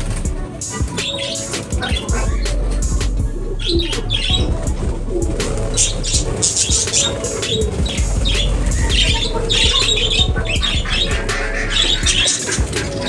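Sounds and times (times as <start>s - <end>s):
budgerigars chirping and chattering: 0.7s - 2.4s, 3.6s - 4.5s, 5.7s - 13.0s
steady low hum: 2.1s - 12.3s.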